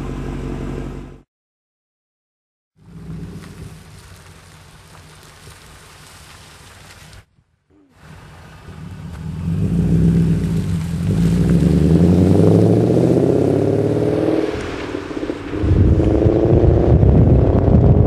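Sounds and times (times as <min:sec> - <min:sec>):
car engine accelerating hard: 0:02.8 - 0:05.3, 0:08.0 - 0:18.0.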